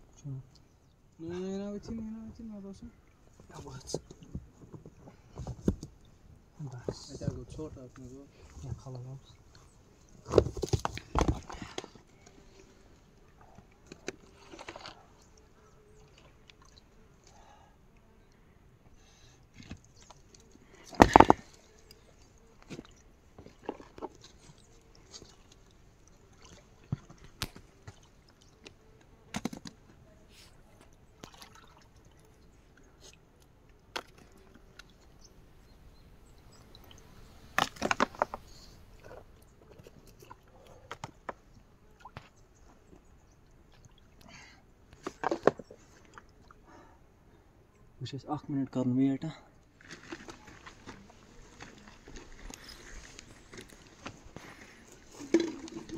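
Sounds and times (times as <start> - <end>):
hands moving stones and wood: 9.6 - 12.3, 19.6 - 22.0, 22.6 - 25.4, 37.4 - 40.1, 45.0 - 46.1, 49.8 - 55.9
stones clattering: 20.9 - 21.6.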